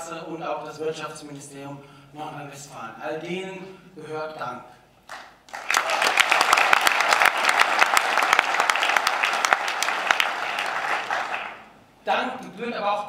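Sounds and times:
audience applauding: 5.1 - 11.7.

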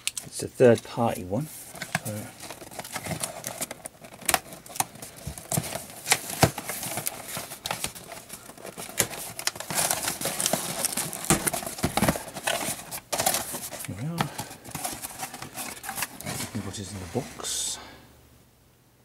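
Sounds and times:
packing tape tearing: 1.7 - 16.5.

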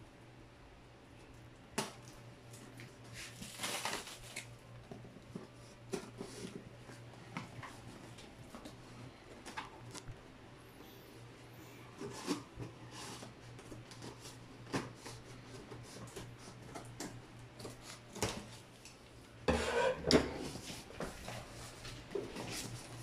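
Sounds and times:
cardboard rustling and scraping: 3.0 - 10.1, 11.9 - 18.7, 19.5 - 23.0.

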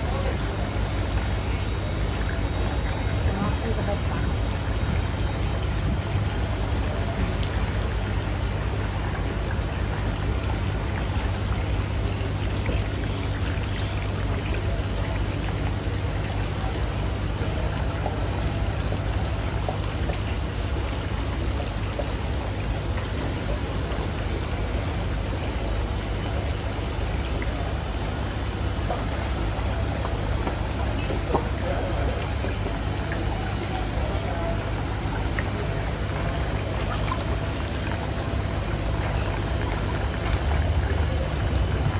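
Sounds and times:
low steady rumble: 0.0 - 41.9
water bubbling and trickling: 0.0 - 41.9.

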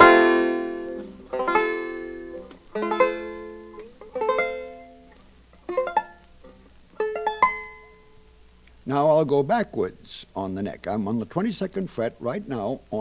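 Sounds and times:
banjo picking arpeggios: 0.0 - 8.3.

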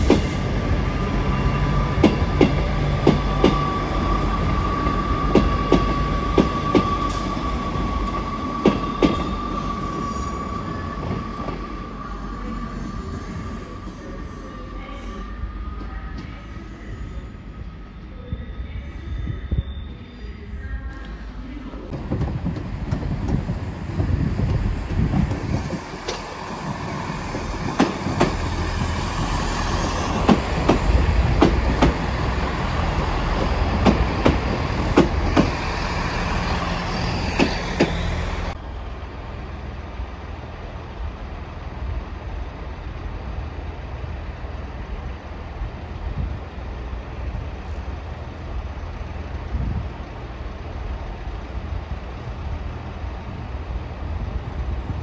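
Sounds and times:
diesel train engine rumbling: 0.0 - 18.6, 20.7 - 55.0
distant train: 0.0 - 55.0.

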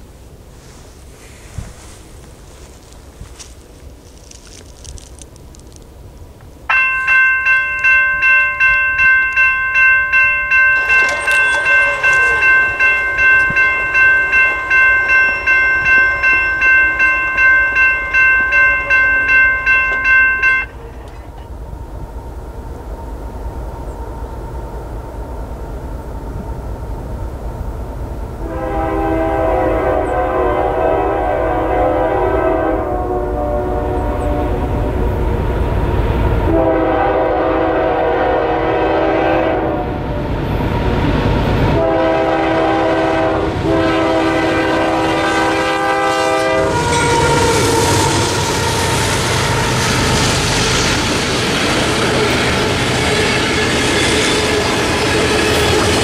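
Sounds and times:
train wheels clicking over rail joints: 6.7 - 21.6, 46.9 - 56.0
locomotive horn blasts: 10.1 - 20.8, 28.4 - 34.9, 36.5 - 40.2, 41.8 - 49.8.

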